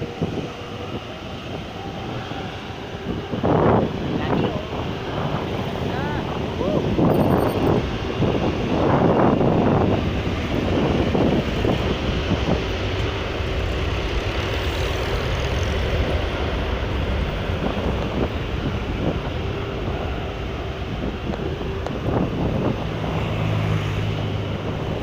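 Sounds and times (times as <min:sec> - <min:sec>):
distant jet engines rushing: 0:00.0 - 0:25.0.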